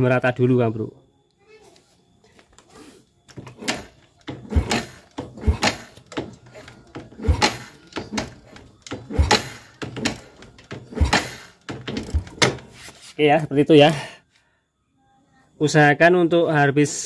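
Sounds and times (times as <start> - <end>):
motorcycle kick-starter clunks: 3.3 - 12.7.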